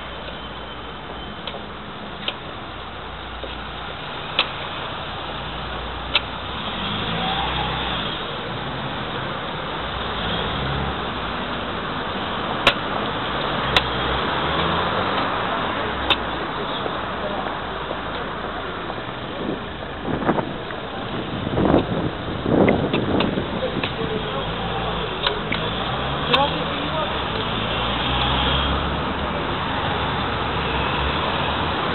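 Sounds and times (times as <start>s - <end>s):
cars passing in steady hum: 0.0s - 31.9s
sharp clicks: 12.6s - 13.9s.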